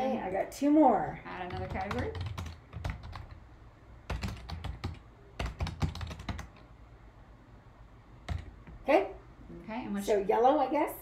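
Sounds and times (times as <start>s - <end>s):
typing on computer keyboard: 1.4s - 3.4s, 4.1s - 6.6s, 8.3s - 8.5s.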